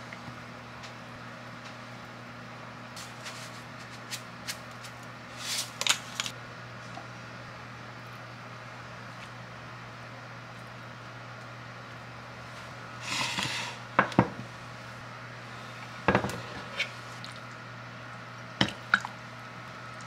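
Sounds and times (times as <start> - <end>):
mug scraping on stone countertop: 13.0 - 13.8, 16.1 - 17.0.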